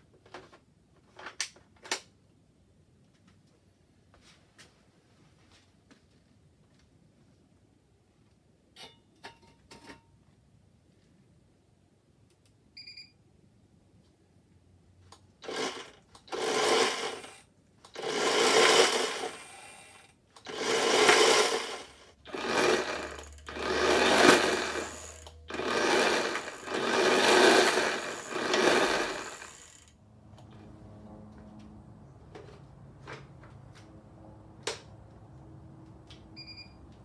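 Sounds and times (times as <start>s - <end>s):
electric motor spinning a wheel: 15.4s - 30.0s.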